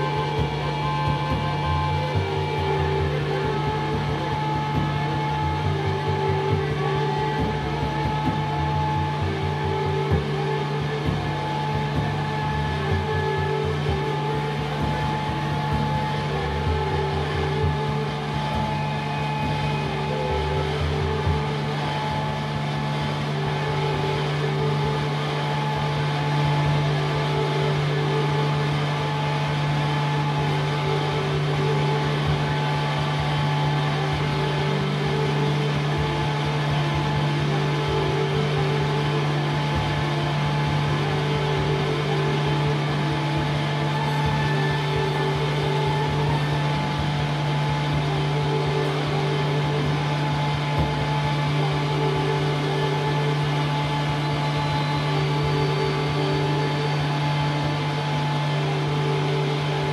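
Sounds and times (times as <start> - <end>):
ambient drone music: 0.0 - 59.9.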